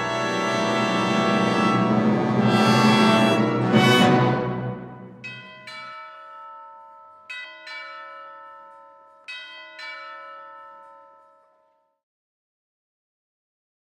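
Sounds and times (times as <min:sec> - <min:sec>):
low orchestral chord: 0:00.0 - 0:05.2
bell ringing: 0:04.5 - 0:12.0.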